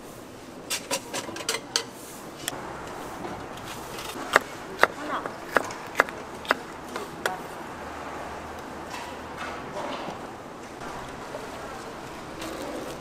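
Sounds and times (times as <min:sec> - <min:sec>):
knife chopping on wooden board: 0:04.2 - 0:06.6.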